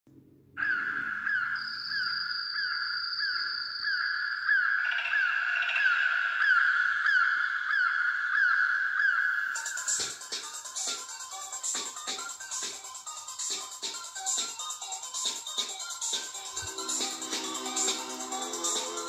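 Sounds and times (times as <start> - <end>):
electronic music with synth chirps: 9.5 - 19.0.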